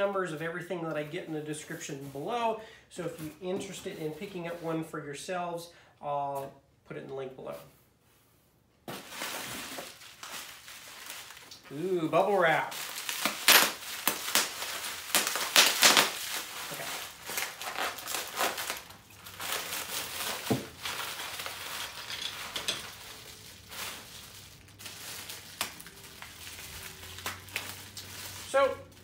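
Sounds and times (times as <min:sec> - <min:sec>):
bubble wrap crinkling: 0:08.9 - 0:29.0.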